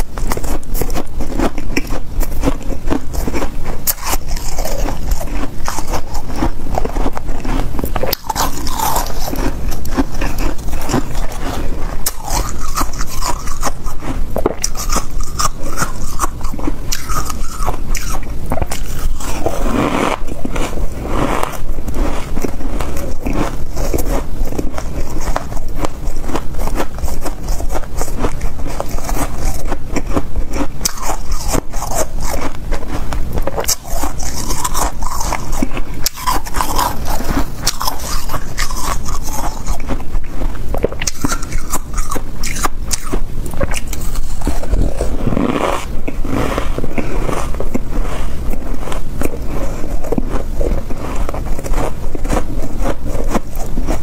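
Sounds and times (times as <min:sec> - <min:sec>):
crunching frost: 0:00.2 - 0:40.1.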